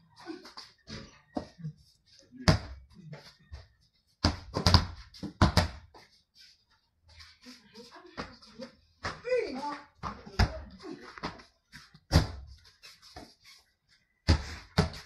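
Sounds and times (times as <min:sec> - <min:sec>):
basketball bouncing on concrete: 0:02.4 - 0:02.8, 0:04.2 - 0:05.9, 0:10.0 - 0:10.7, 0:14.2 - 0:15.0.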